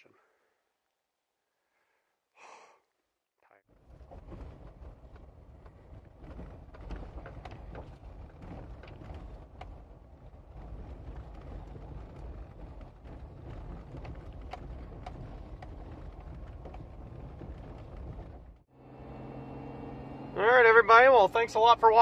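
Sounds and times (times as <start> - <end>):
tyres rolling over gravel: 3.7 - 18.6.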